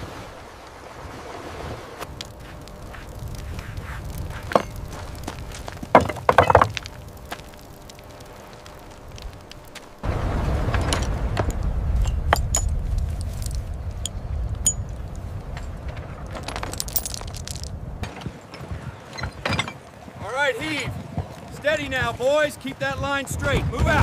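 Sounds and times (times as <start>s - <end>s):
low rumble: 6.7s - 18.0s.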